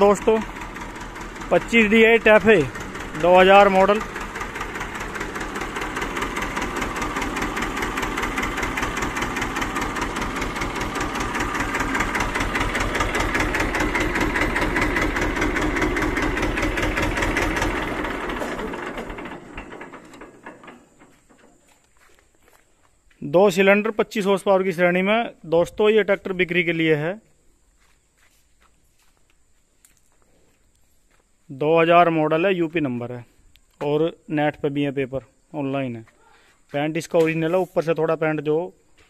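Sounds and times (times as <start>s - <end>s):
diesel tractor engine idling: 0.0s - 26.9s.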